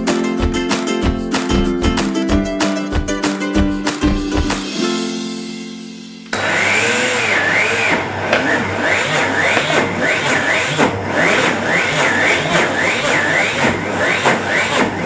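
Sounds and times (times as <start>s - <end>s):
blender grinding stone: 6.3s - 15.0s.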